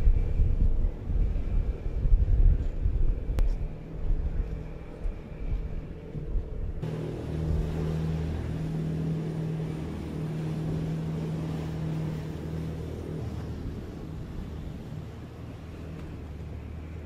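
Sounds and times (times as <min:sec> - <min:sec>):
wind: 0:00.0 - 0:17.0
boat diesel engines droning: 0:03.2 - 0:17.0
rushing water: 0:06.8 - 0:17.0.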